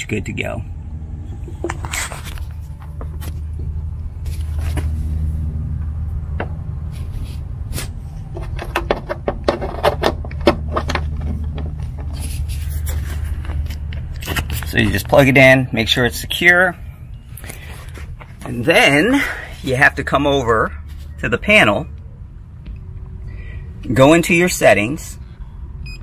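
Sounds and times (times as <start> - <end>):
steady low hum: 0.0 - 26.0
cable connector clicks and scrapes: 1.3 - 3.4, 7.8 - 14.8.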